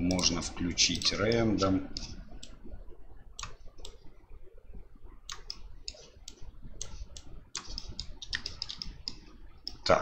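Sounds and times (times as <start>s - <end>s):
mouse and keyboard clicks: 5.3s - 9.8s.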